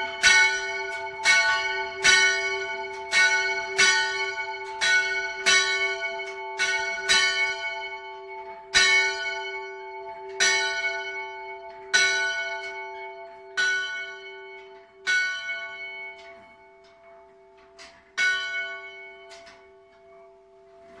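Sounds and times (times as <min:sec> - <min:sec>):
church bell ringing: 0:00.0 - 0:21.0.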